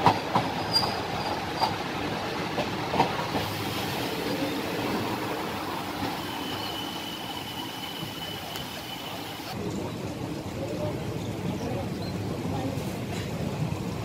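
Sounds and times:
train rumble and rattle: 0.0 - 14.0.

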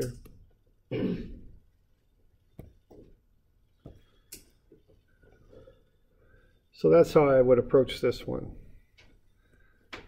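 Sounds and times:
stylus tapping on tablet screen: 2.5 - 3.1.

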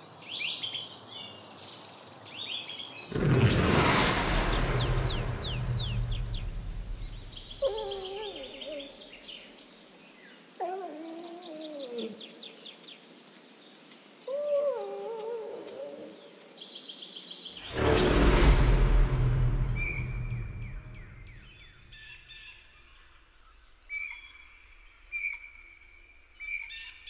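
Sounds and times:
songbirds chirping: 0.0 - 3.3, 4.3 - 17.8, 18.7 - 27.0.

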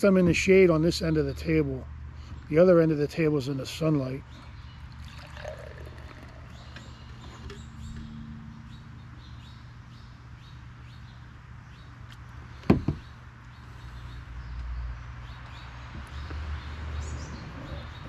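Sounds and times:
birds chirping: 0.0 - 18.0
beer pouring into glass: 4.9 - 6.8
sharp knocks: 12.6 - 13.1.

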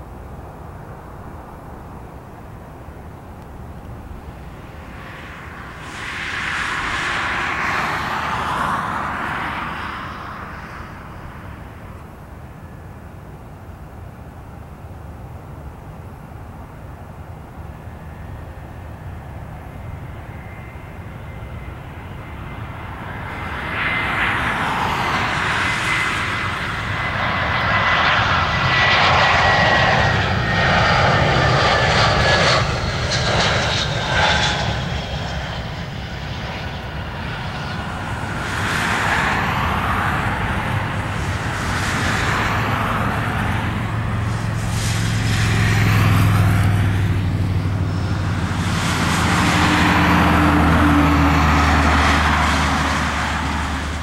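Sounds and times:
jet engine whine: 0.0 - 54.0
deep engine rumble: 17.5 - 54.0.

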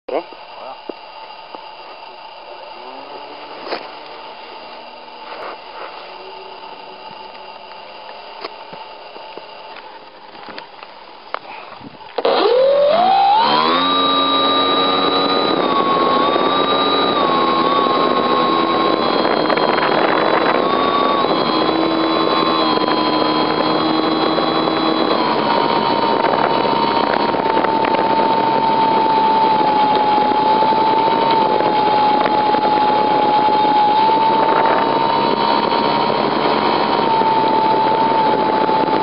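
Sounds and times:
small aircraft engine: 0.1 - 39.0.

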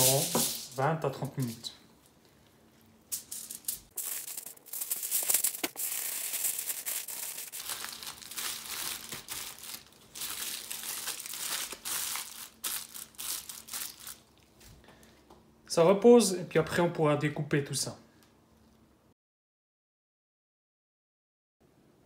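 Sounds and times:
aluminium foil crinkling: 3.1 - 14.6.

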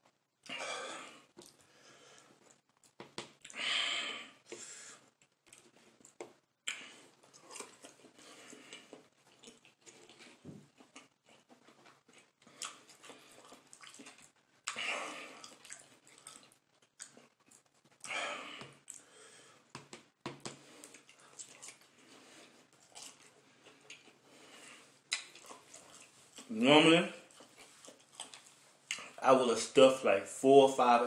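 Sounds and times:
man chewing: 0.4 - 19.7, 20.4 - 26.5, 27.2 - 29.2
breathy huffs: 0.5 - 2.4.

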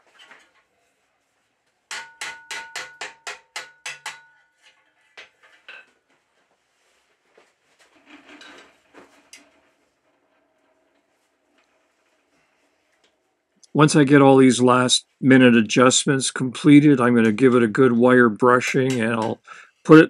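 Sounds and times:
hammer tapping steel: 1.9 - 4.5.

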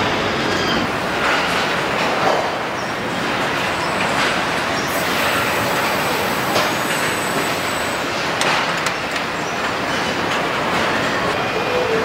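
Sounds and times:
factory machinery din: 0.0 - 9.2.

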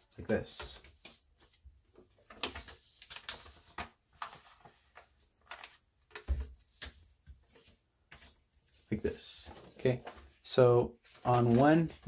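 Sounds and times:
paper rustling and crinkling: 0.2 - 12.0.

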